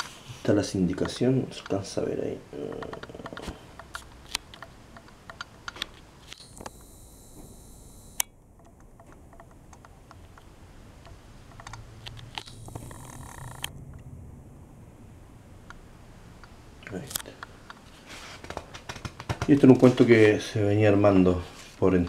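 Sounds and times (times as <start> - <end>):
paper rustling: 17.8 - 20.5.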